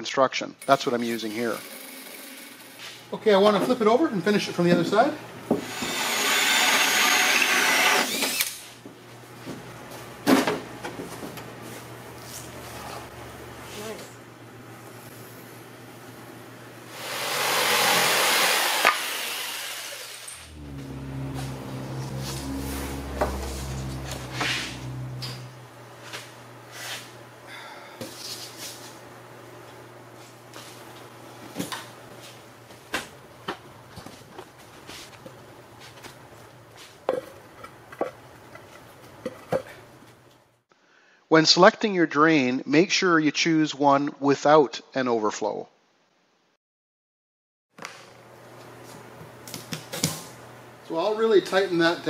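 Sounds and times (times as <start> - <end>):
power drill with hole saw whining: 5.6 - 8.6, 17.0 - 20.8.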